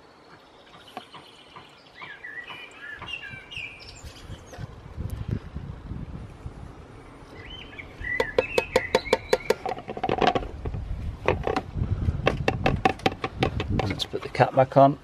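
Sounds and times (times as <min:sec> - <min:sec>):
bird chirping: 0:00.0 - 0:04.7, 0:07.0 - 0:10.0.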